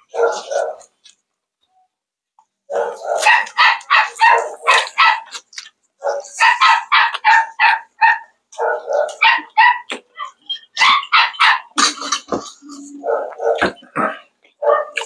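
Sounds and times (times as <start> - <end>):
dog barking: 0.0 - 0.9, 2.7 - 5.4, 6.0 - 11.8, 13.0 - 13.8, 14.6 - 15.0.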